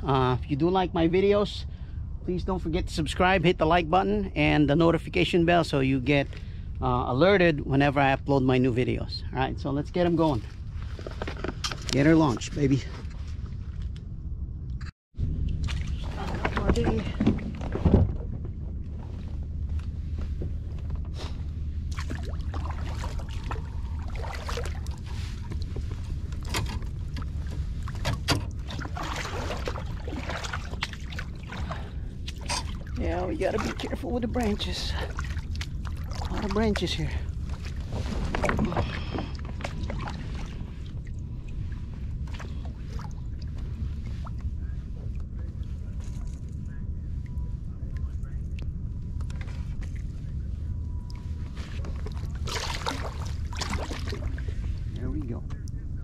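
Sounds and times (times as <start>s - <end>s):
low hum: 0.0s - 56.0s
steady low rumble: 0.0s - 56.0s
paddle splashing in water: 21.9s - 25.9s, 27.8s - 34.0s, 35.0s - 36.8s, 51.8s - 54.8s.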